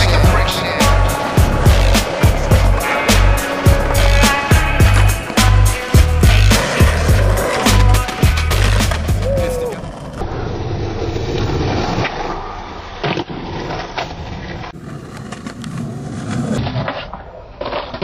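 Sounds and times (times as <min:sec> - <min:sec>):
skateboard clacks: 0:00.0 - 0:10.2
skateboard wheels rolling: 0:00.0 - 0:18.0.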